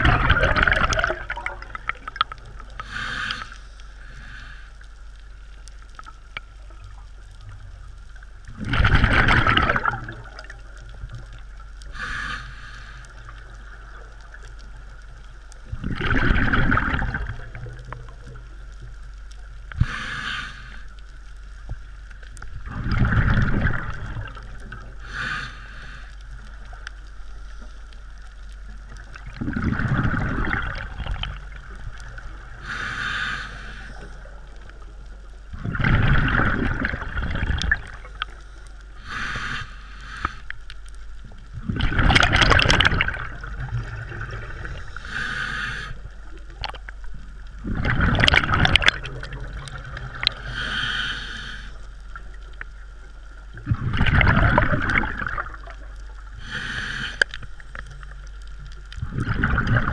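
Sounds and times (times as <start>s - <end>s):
exhaled bubbles rushing: 0.0s - 2.9s, 8.4s - 11.4s, 15.7s - 18.2s, 22.6s - 25.0s, 28.9s - 32.6s, 35.5s - 38.2s, 41.5s - 44.9s, 46.4s - 50.5s, 53.5s - 56.2s, 59.0s - 59.9s
regulator inhale hiss: 2.7s - 5.5s, 11.8s - 13.7s, 19.7s - 21.3s, 24.9s - 28.4s, 32.5s - 34.4s, 37.8s - 41.0s, 44.5s - 46.4s, 50.2s - 52.2s, 56.3s - 57.8s.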